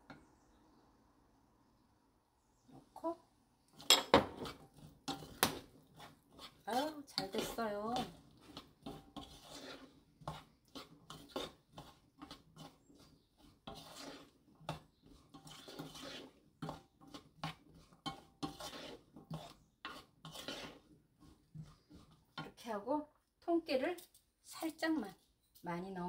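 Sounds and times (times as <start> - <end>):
wooden spoon scraping a pan: 2.7 - 23.1.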